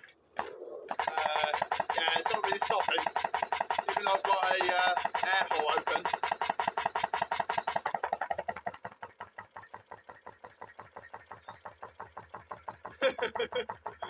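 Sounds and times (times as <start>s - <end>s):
engine fast even knocking: 0.9s - 14.0s.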